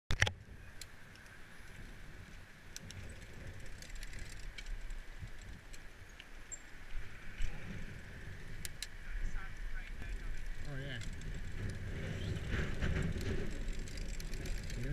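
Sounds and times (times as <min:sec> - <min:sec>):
bike clicks and rattles: 0:00.1 - 0:06.6, 0:07.4 - 0:09.0, 0:09.8 - 0:14.9
bicycle tyres rumbling on road: 0:00.4 - 0:14.9
wind on microphone: 0:07.0 - 0:14.9.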